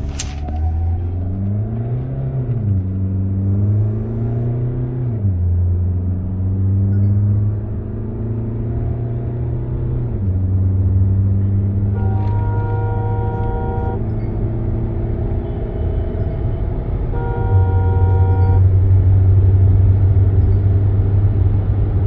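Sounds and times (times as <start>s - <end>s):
car engine accelerating hard: 0.0s - 22.0s.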